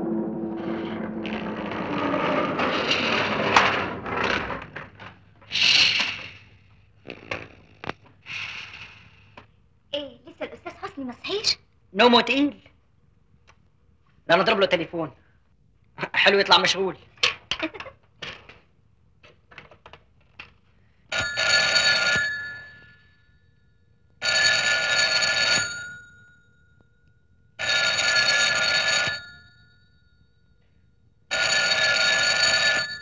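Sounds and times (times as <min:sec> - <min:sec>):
telephone bell ringing: 0:21.1 - 0:33.0.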